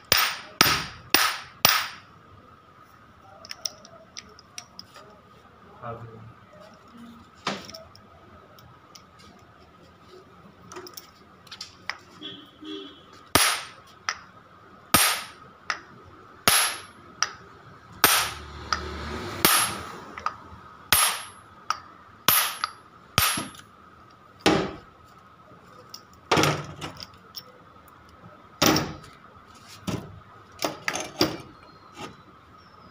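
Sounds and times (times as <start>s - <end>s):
hammer striking metal: 0.0s - 2.1s, 13.4s - 13.8s, 15.0s - 15.4s, 16.5s - 17.4s, 18.0s - 20.3s, 20.9s - 23.6s.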